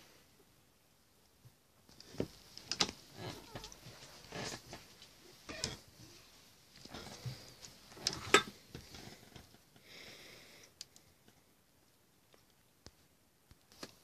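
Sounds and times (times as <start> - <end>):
rustling: 1.8 - 9.7.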